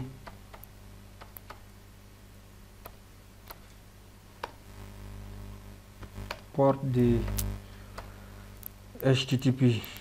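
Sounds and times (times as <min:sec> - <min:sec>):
low electrical hum: 0:00.0 - 0:10.0
keyboard typing clicks: 0:00.2 - 0:01.6.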